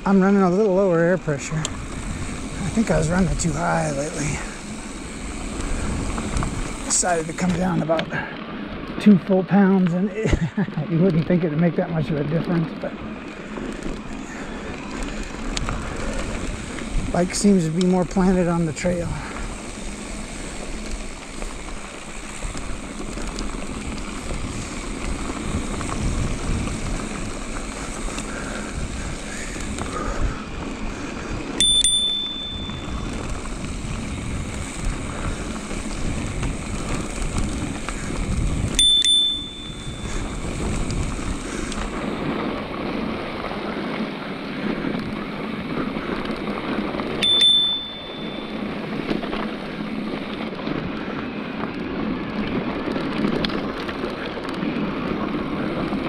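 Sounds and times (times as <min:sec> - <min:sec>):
tyre and trail noise: 0:00.0 - 0:56.0
wind on microphone: 0:01.7 - 0:03.5, 0:23.6 - 0:43.4
bicycle bell ding: 0:31.6 - 0:33.0, 0:38.8 - 0:40.1, 0:47.2 - 0:48.8.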